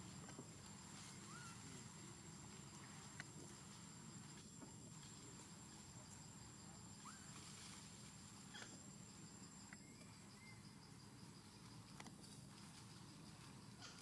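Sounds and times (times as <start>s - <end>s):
high insect drone: 0.0s - 14.0s
faint animal squeaks: 1.1s - 1.8s.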